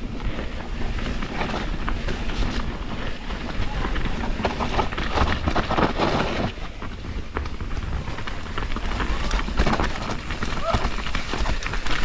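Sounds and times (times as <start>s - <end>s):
bike chain and frame rattling: 0.0s - 12.0s
tyres rolling over wet soil: 0.0s - 12.0s.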